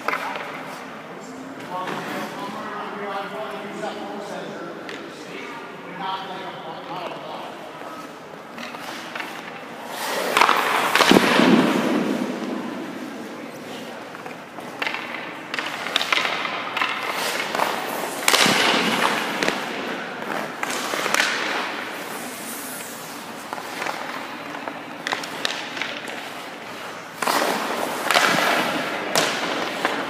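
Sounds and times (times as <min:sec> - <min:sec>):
pucks hitting pads: 0:00.0 - 0:00.9, 0:04.8 - 0:05.2, 0:06.8 - 0:30.0
skates scraping on ice: 0:00.0 - 0:04.0, 0:06.8 - 0:30.0
stick striking puck: 0:08.6 - 0:12.6, 0:14.2 - 0:21.8, 0:23.5 - 0:26.4, 0:27.2 - 0:30.0.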